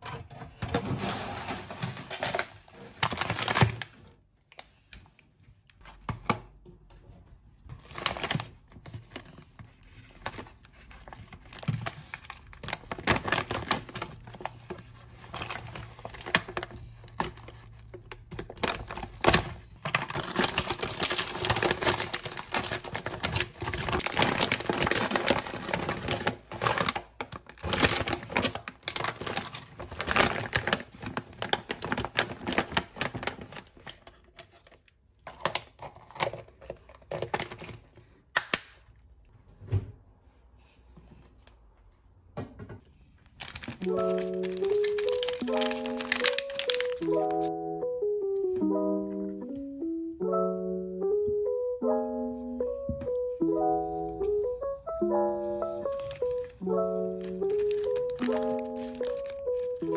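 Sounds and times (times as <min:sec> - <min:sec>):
plastic bag crinkling and tearing: 0:00.8 - 0:04.9, 0:07.8 - 0:38.0, 0:43.4 - 0:47.6, 0:55.1 - 0:59.9
frozen prawns clattering into tub: 0:18.4 - 0:33.8, 0:43.4 - 0:47.3, 0:57.4 - 0:59.8.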